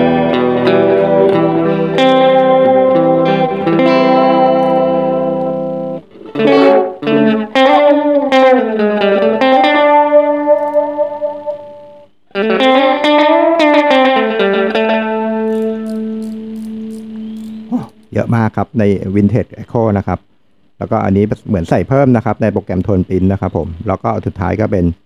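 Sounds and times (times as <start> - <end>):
overdriven electric guitar: 0.0 - 18.1.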